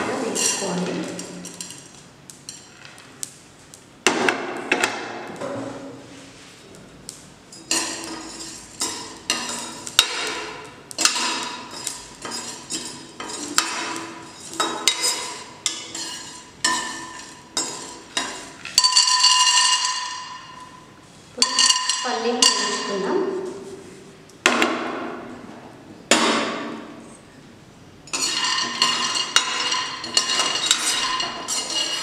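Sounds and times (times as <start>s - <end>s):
spoon scraping spices in metal pot: 0.1s - 2.8s, 7.5s - 23.6s, 28.1s - 32.0s.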